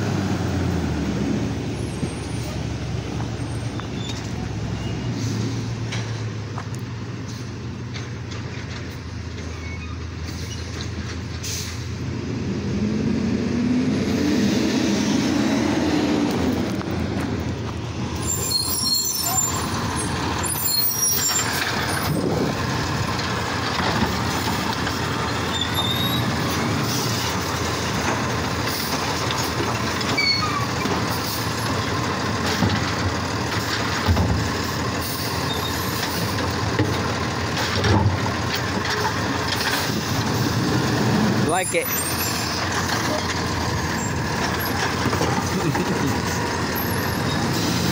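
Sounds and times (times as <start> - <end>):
garbage truck diesel engine: 0.0 - 47.9
air brakes squealing and hissing: 1.8 - 2.7, 3.4 - 6.0, 9.5 - 12.0, 18.2 - 22.2, 25.2 - 27.5, 28.7 - 31.7, 34.6 - 36.4, 41.5 - 44.8, 46.3 - 47.9.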